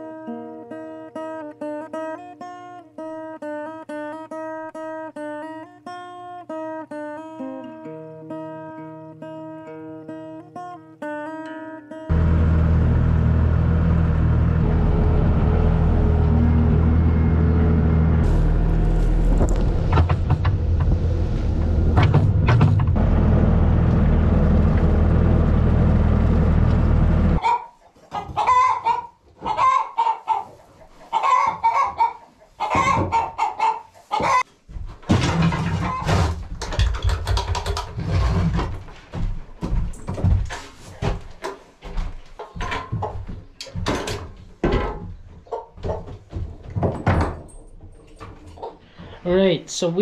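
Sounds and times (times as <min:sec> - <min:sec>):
tractor engine humming: 0:12.1 - 0:27.4
shovel scraping floor: 0:18.2 - 0:20.1, 0:38.0 - 0:38.9
hens clucking: 0:27.4 - 0:34.5, 0:42.3 - 0:43.6, 0:44.8 - 0:46.3.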